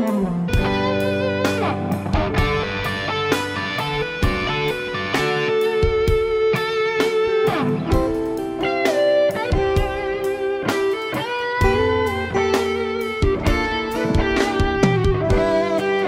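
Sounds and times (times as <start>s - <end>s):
electric guitars playing ballad: 0.0s - 16.0s
drum hits: 0.6s - 6.5s, 11.6s - 15.7s.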